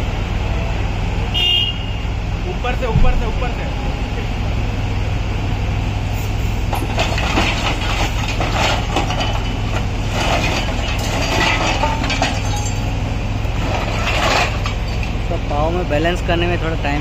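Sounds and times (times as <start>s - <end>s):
excavator diesel engine running: 0.0s - 17.0s
rubble crunching and clinking: 6.7s - 15.4s.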